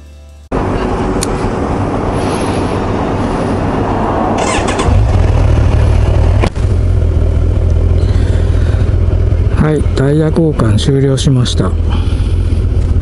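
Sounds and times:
motorcycle engine starting and idling: 0:04.3 - 0:13.0.

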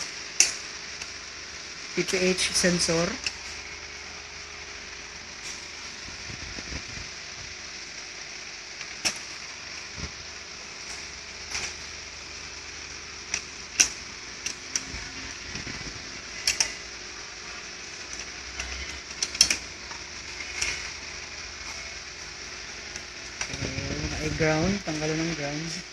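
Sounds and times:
metal and plastic parts clicking: 0:00.4 - 0:01.1, 0:16.4 - 0:16.8, 0:18.1 - 0:19.6.

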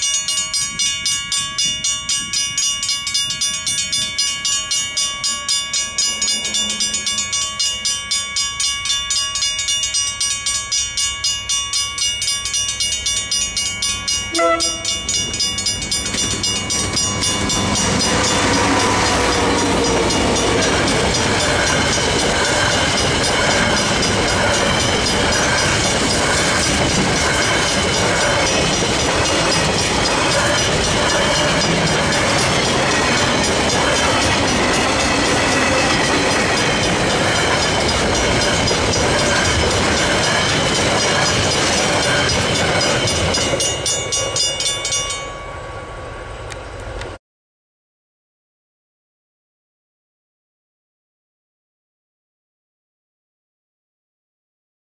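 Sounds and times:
level-crossing bells clanging: 0:00.0 - 0:46.0
train rolling across crossing: 0:00.0 - 0:47.2
locomotive horn blast: 0:14.3 - 0:15.0.

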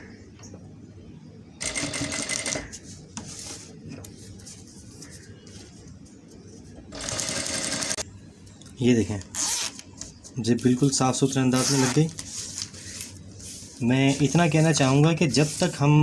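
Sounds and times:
sewing machine stitching: 0:07.0 - 0:08.0.

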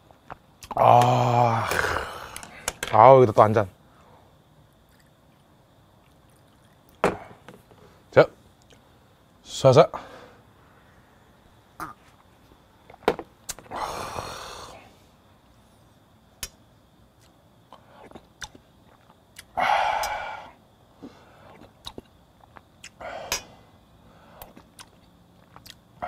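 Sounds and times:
breathy exhale: 0:09.9 - 0:11.0, 0:13.7 - 0:15.1, 0:19.6 - 0:21.5, 0:23.0 - 0:24.5.

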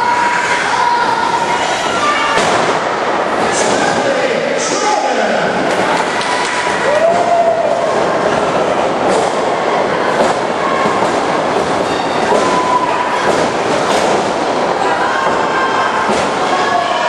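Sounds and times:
crowd yelling in a gym: 0:00.0 - 0:17.0
wrestlers hitting ring mat: 0:02.3 - 0:04.0, 0:08.3 - 0:16.9.

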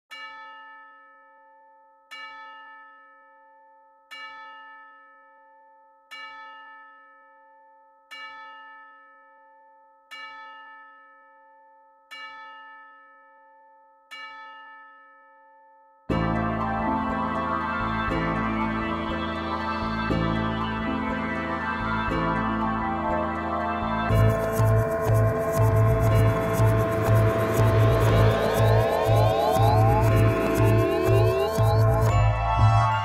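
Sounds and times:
loop-made music track: 0:16.1 - 0:33.0.

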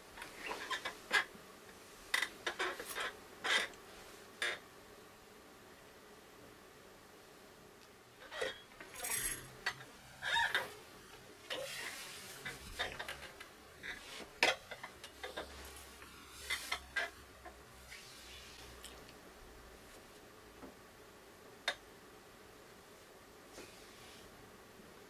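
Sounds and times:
clothing rustling: 0:08.5 - 0:19.0.

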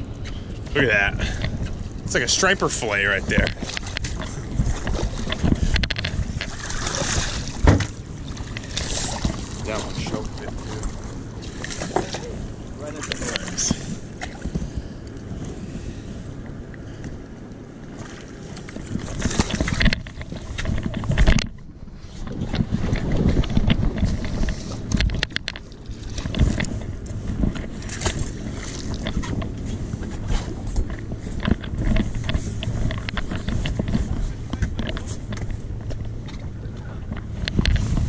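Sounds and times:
knocks and bumps on boat: 0:00.0 - 0:15.6, 0:17.9 - 0:38.0
wind buffeting microphone: 0:00.0 - 0:38.0.

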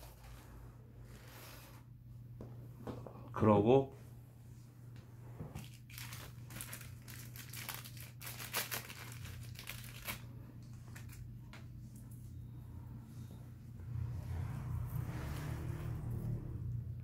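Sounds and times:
plastic bag crinkling: 0:05.6 - 0:11.3.

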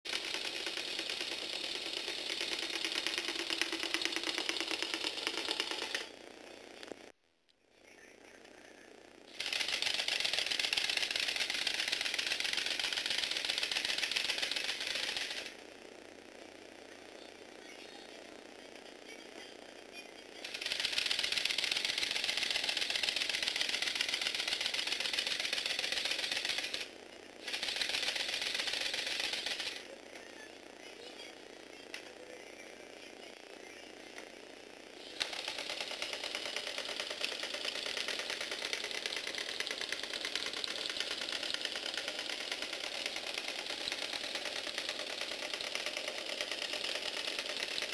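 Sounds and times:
toy robot plastic clatter on wood: 0:00.1 - 0:06.1, 0:09.4 - 0:15.6, 0:20.4 - 0:26.9, 0:35.1 - 0:47.9.

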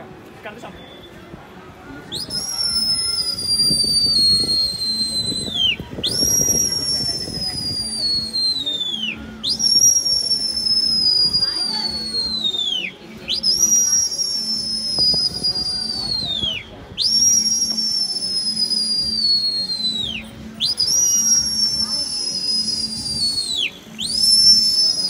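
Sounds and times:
person whistling: 0:02.1 - 0:25.0.

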